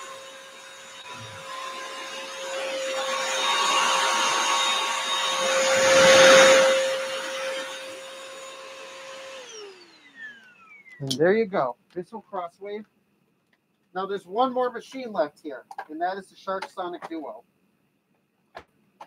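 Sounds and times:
floor cleaner motor whine: 0.0s - 11.2s.

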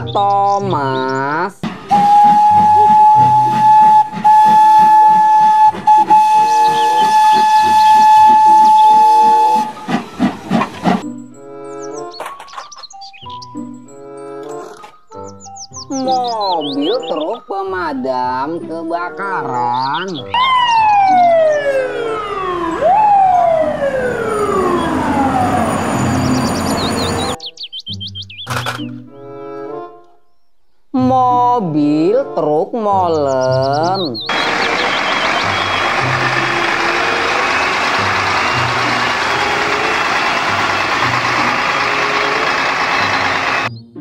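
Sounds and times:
steam engine chuffing: 1.6s - 11.1s, 34.3s - 43.7s
steam locomotive whistle: 1.8s - 10.6s, 34.3s - 43.7s
fire truck siren wailing: 1.9s - 10.0s, 20.3s - 27.4s, 34.3s - 43.7s.

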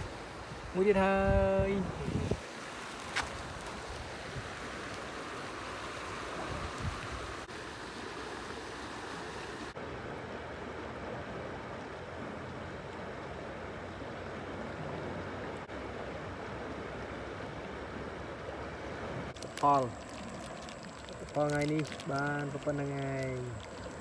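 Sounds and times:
water rushing through sluice gate: 19.2s - 24.0s.

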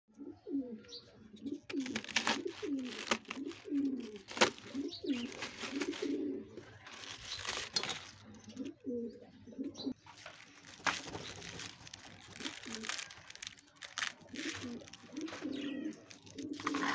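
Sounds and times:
pigeons cooing: 0.1s - 10.0s, 11.1s - 13.5s, 14.2s - 16.9s
knife cutting through cabbage: 1.7s - 6.2s.

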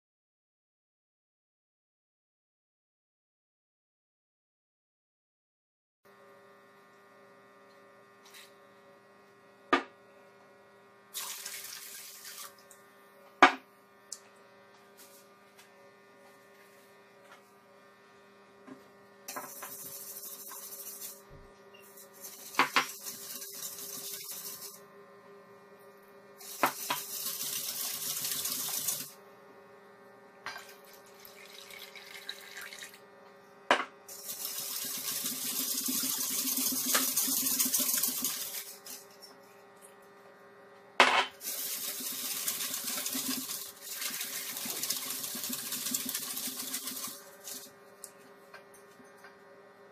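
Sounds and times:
liquid pouring and splashing: 11.2s - 12.7s, 30.6s - 33.0s, 34.1s - 38.8s, 41.4s - 47.7s.

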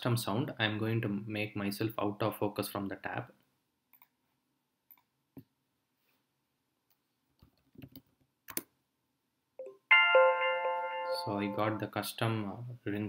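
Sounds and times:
computer mouse clicks: 3.9s - 4.2s, 6.9s - 8.7s
multi-tone message chime: 9.6s - 11.8s.

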